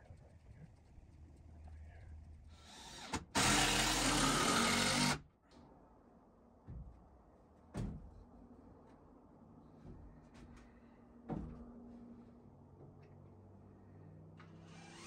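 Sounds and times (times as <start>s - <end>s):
power tool running: 2.6s - 5.2s, 14.6s - 15.0s.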